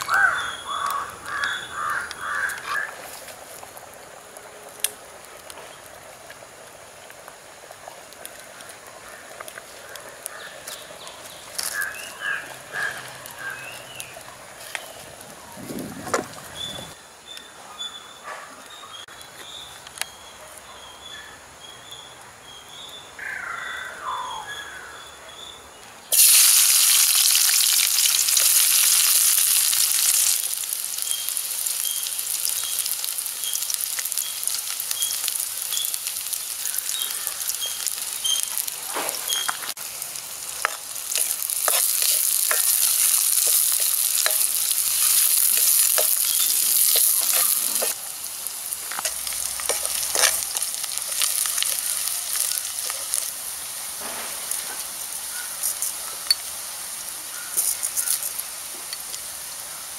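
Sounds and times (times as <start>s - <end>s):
onions sizzling in hot oil: 0.0s - 17.0s, 26.1s - 59.9s
ladle scraping wok: 40.6s - 48.0s, 48.7s - 53.2s.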